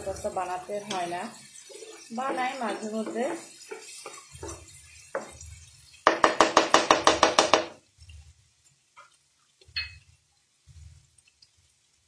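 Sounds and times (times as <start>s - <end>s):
spatula striking frying pan: 2.6s - 5.4s, 6.0s - 7.8s.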